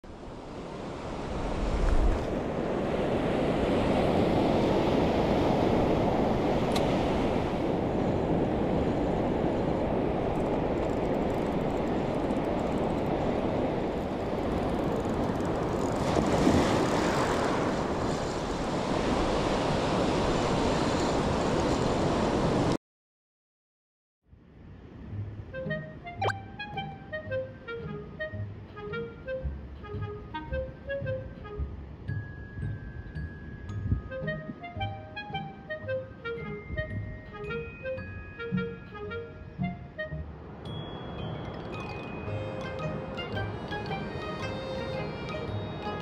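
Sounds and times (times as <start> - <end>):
ocean waves washing on beach: 0.1 - 22.8.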